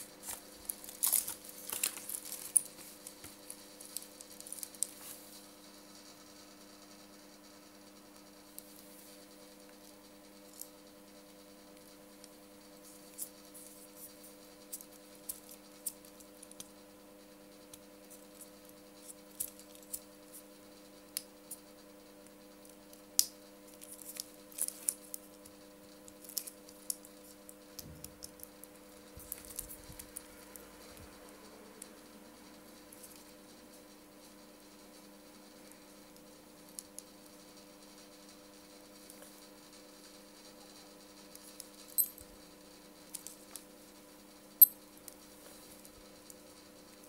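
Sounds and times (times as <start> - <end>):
faint steady hum: 0.0 - 47.0
watch bracelet clicks and rustles: 0.2 - 5.1.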